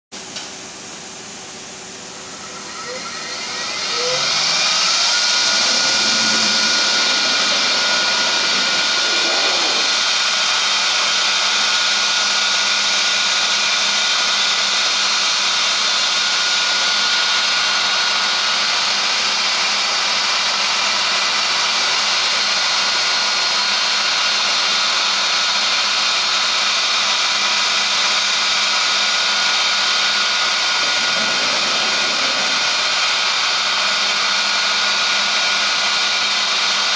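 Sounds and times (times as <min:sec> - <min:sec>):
router spindle whine: 0:00.8 - 0:36.9
loud hiss of cutting plastic: 0:02.8 - 0:10.4, 0:29.7 - 0:33.6.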